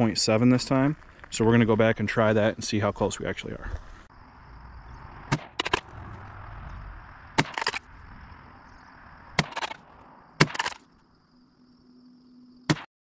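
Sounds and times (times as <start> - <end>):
gunshots: 5.3 - 6.0, 7.4 - 7.8, 9.4 - 9.8, 10.4 - 10.8.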